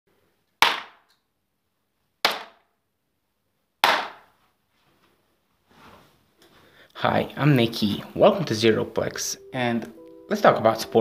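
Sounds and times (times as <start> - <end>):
darts striking dartboard: 0.6 - 1.0, 2.2 - 2.6, 3.8 - 4.3.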